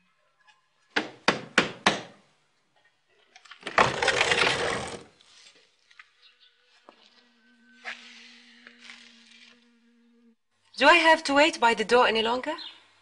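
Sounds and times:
noisy scrape: 7.5s - 9.7s.

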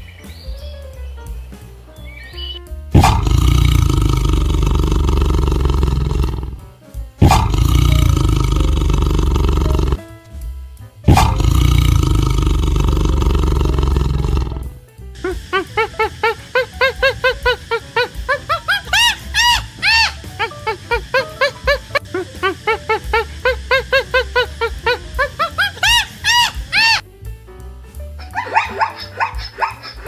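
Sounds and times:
large animal roaring: 3.0s - 6.6s, 7.2s - 10.0s, 11.1s - 14.8s.

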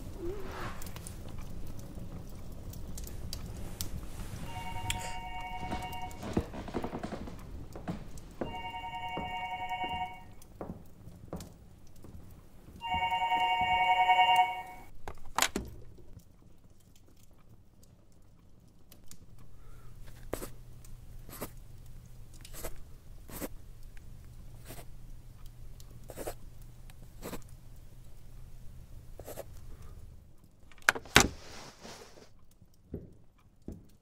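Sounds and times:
low steady hum: 0.0s - 10.4s
telephone ringing: 4.4s - 6.5s, 8.4s - 10.4s, 12.8s - 14.9s.

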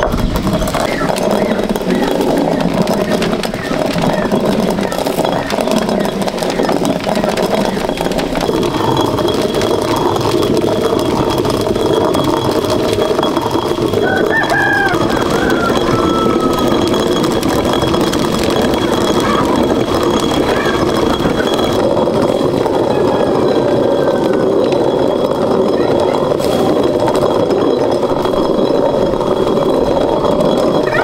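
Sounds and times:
stone quern grinding corn: 0.0s - 31.0s
rooster crowing: 14.0s - 16.8s.

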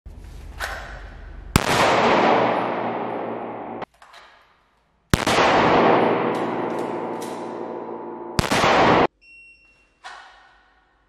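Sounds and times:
pistol shots echoing: 1.6s - 3.9s, 5.1s - 9.1s.

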